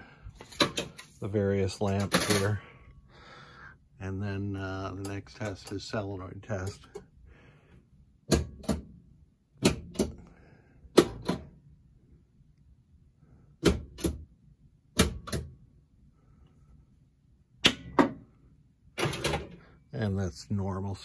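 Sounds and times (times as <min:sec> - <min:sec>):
pinball solenoid clacks: 0:19.0 - 0:19.6.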